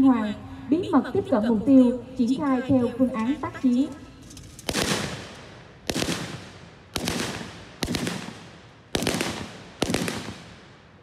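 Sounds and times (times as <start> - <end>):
rifle gunshots echoing: 4.4 - 11.0.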